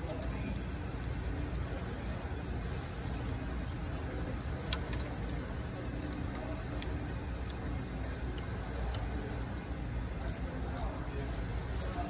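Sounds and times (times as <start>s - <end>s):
steady low hum: 0.0s - 12.0s
ratchet wrench clicking: 2.8s - 3.0s, 3.6s - 5.4s, 6.0s - 12.0s.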